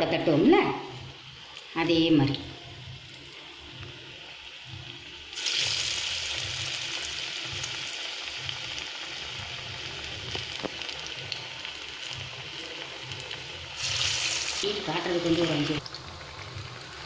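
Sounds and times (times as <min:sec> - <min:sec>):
batter sizzling in hot oil: 0:00.3 - 0:17.0
small pops of frying oil: 0:10.2 - 0:11.4.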